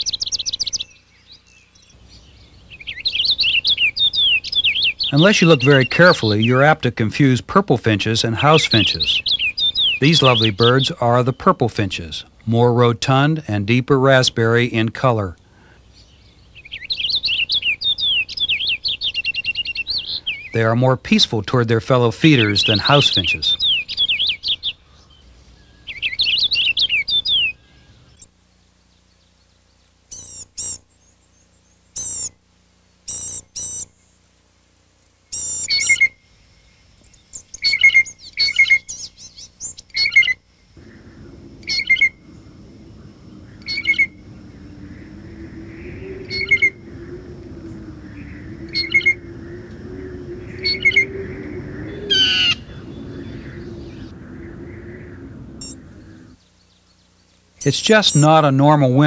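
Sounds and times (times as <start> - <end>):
small songbirds chirping: 0.0 - 13.3, 14.4 - 34.4, 35.1 - 59.0
low steady rumble: 36.1 - 56.7.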